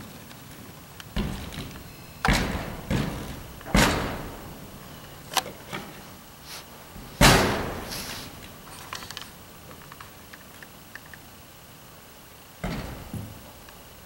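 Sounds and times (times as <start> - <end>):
ice tools striking hollow wall panels: 1.1 - 6.0, 7.2 - 8.7.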